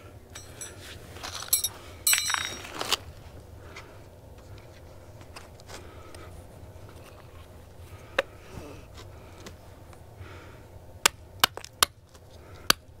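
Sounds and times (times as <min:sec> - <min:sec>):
light metallic ring: 0:00.3 - 0:02.7.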